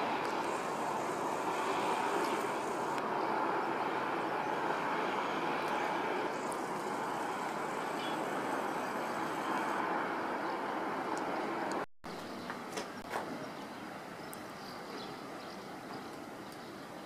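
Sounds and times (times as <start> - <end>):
distant city traffic hum: 0.0 - 17.0
faint clicks: 2.2 - 3.1.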